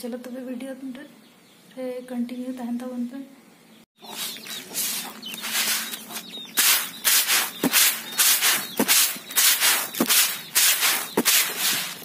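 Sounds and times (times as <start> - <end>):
grain winnowed in basket: 4.0 - 12.0.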